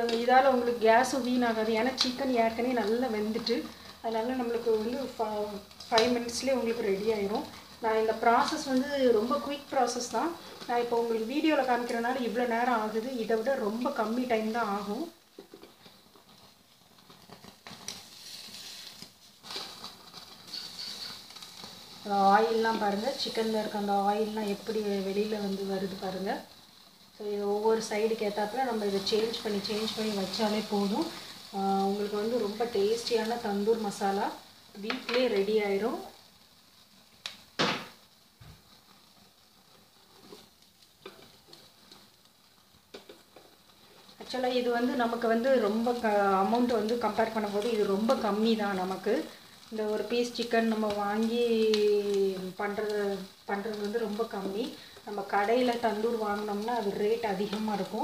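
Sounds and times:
chicken sizzling on a grill: 0.0 - 58.0
loud hiss: 17.8 - 38.7, 44.2 - 53.5, 54.2 - 56.2.

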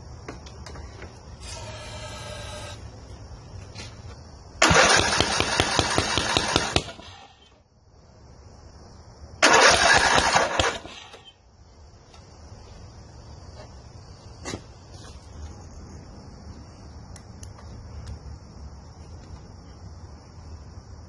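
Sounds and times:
mower engine cranking: 4.6 - 7.2, 9.4 - 11.2.

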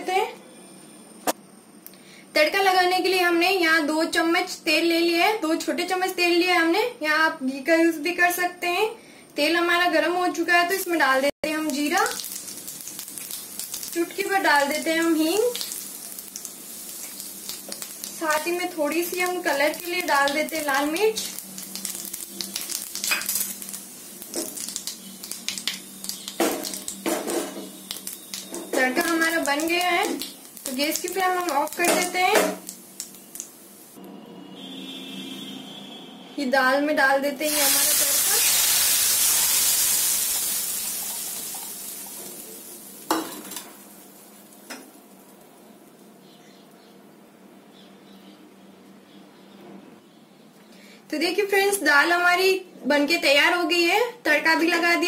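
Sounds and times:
spices sizzling in hot oil: 10.7 - 34.0, 37.4 - 45.7
spices stirred in oil: 11.5 - 34.0, 37.4 - 45.5.

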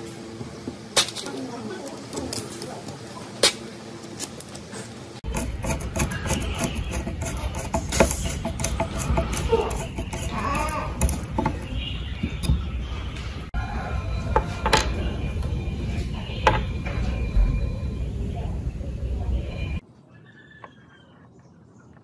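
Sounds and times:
screwdriver turning screws: 5.3 - 11.6.

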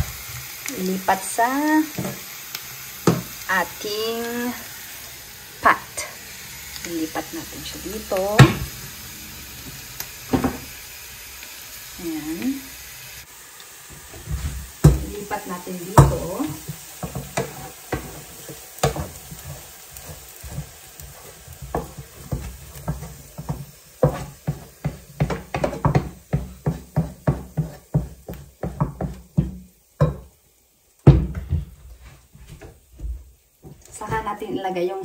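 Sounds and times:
wooden spatula scraping frying pan: 13.9 - 30.3.

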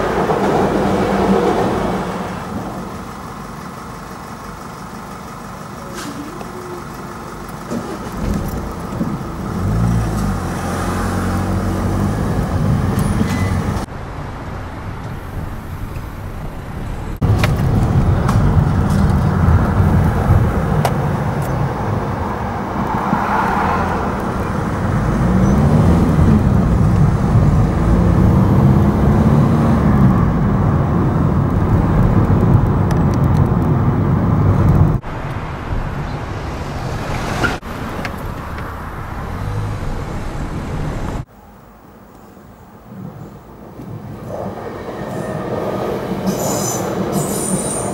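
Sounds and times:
car engine: 0.0 - 41.6.

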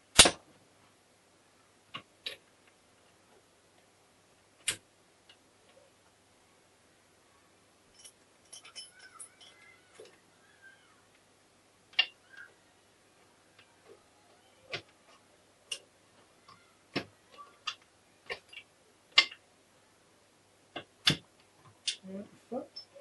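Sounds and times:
metal parts clicking and clinking: 7.9 - 10.2.

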